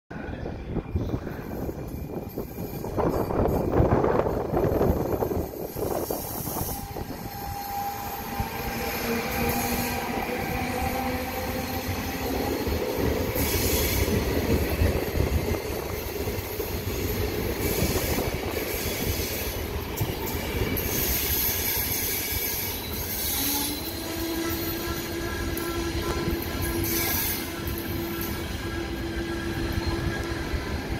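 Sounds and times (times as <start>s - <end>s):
train wheels rumbling on rails: 0.1s - 30.9s
locomotive whining tones: 1.8s - 30.9s.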